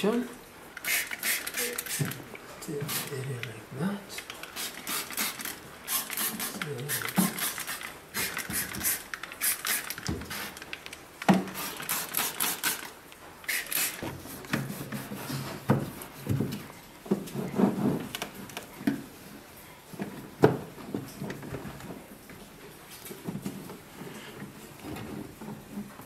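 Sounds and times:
spray bottle spritzing: 0.8 - 2.2, 4.3 - 10.7, 11.4 - 14.0.

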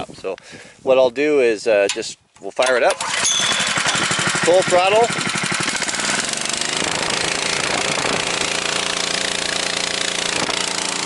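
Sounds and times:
small engine running: 3.0 - 11.0.

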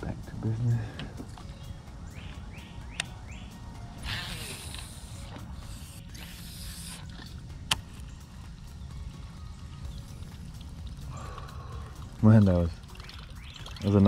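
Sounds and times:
fishing reel whirring: 3.9 - 8.0
fishing reel clicks: 4.0 - 7.8.

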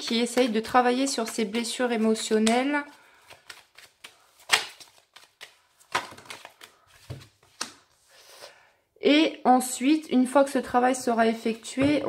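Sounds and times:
cards snapping and clicking: 1.2 - 6.7.

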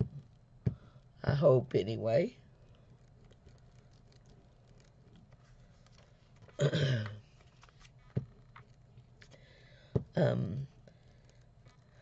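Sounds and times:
woman clearing her throat: 6.6 - 7.2.

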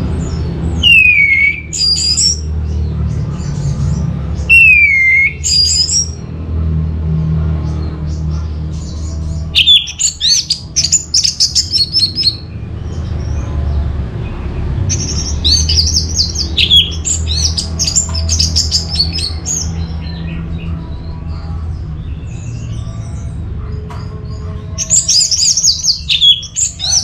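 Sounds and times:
thrush singing: 0.0 - 27.0.

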